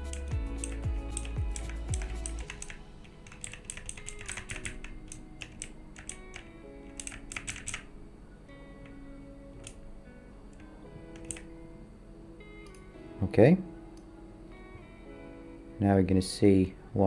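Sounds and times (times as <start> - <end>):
keyboard keys clicking: 0.0 - 7.9, 9.6 - 9.8, 10.5 - 11.5
background music: 0.0 - 17.0.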